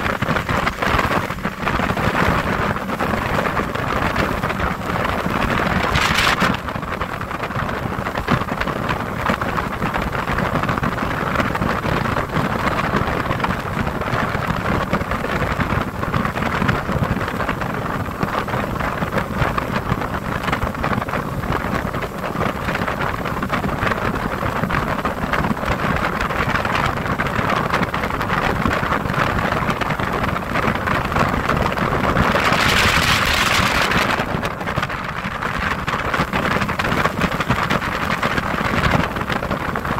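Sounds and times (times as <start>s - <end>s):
motorboat engine drone: 0.0s - 39.9s
rush of wind and water: 0.0s - 39.9s.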